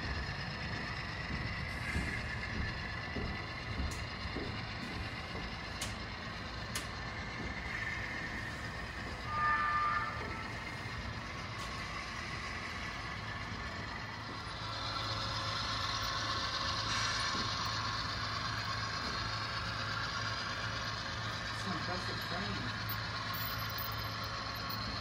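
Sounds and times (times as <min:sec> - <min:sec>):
train wheels clattering: 0:00.0 - 0:25.0
model train motor whirring: 0:04.8 - 0:25.0
brief loud tone: 0:09.2 - 0:10.6.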